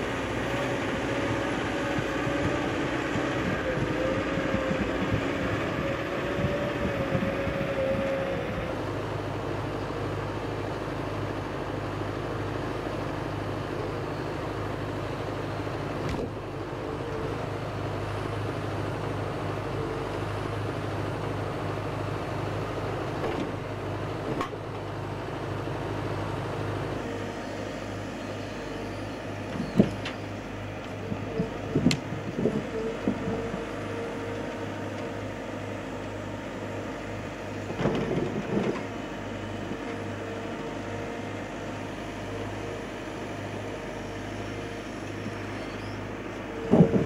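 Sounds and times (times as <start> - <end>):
diesel engine running: 0.0 - 47.0.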